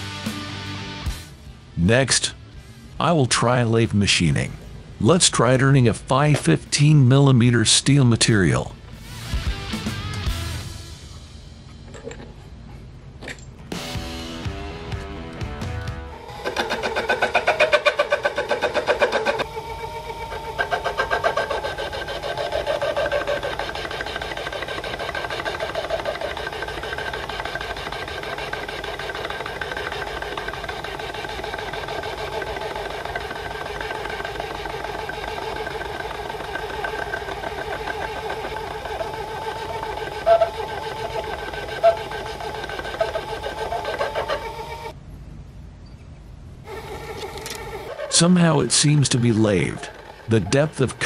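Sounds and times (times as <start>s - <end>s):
lathe motor whine: 16.0s - 45.0s, 46.7s - 51.0s.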